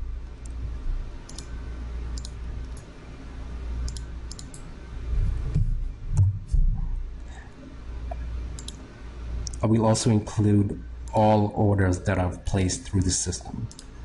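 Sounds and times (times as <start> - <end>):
low steady rumble: 0.0 - 14.0
computer mouse clicking: 1.3 - 2.9, 3.8 - 4.7, 8.5 - 8.8, 13.0 - 13.9
dull low thumps: 5.1 - 7.2.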